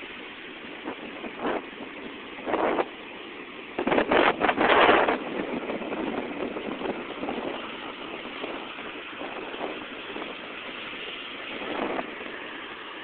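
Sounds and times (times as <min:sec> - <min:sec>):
surf breaking around jetty: 0:00.0 - 0:13.0.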